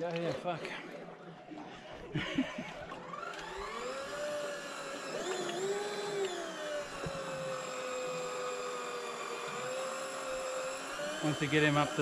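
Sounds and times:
fishing reel motor whining: 2.8 - 12.0.

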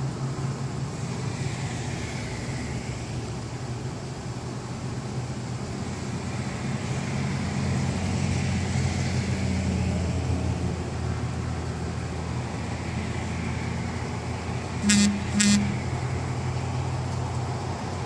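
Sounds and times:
diesel truck engine rumble: 0.0 - 18.0
road noise: 0.0 - 18.0.

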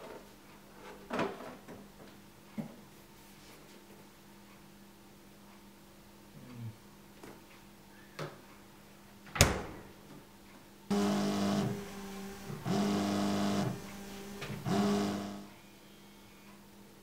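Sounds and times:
phone vibrating on hard surface: 10.9 - 15.5.

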